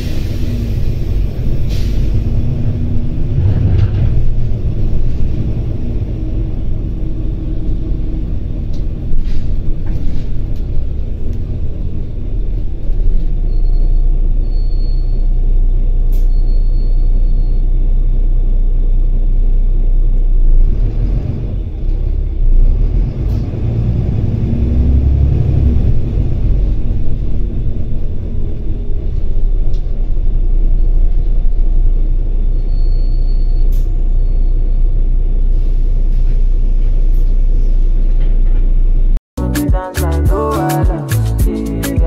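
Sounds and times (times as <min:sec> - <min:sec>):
bus diesel engine rumble: 0:00.0 - 0:42.0
bus body knocks and rattles: 0:03.2 - 0:05.2.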